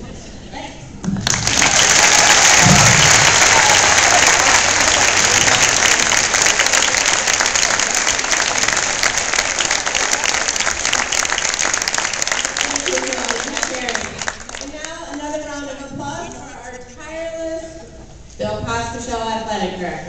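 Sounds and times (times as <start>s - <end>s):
crowd applauding: 1.1s - 15.3s.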